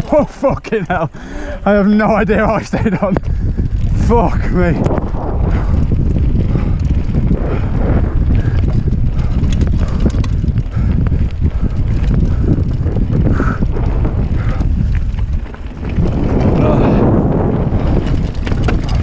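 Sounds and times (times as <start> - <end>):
bike rattling: 0.0 - 19.0
wind buffeting microphone: 0.0 - 19.0
tyres crunching over stones: 13.8 - 19.0.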